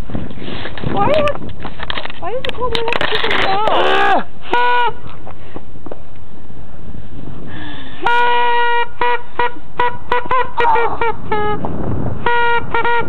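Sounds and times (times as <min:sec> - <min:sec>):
horn tooting: 0:04.4 - 0:05.1, 0:08.0 - 0:13.0.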